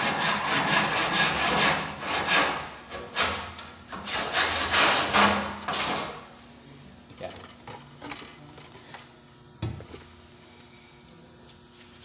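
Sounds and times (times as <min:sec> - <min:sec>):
hand saw cutting wood: 0:00.0 - 0:06.2.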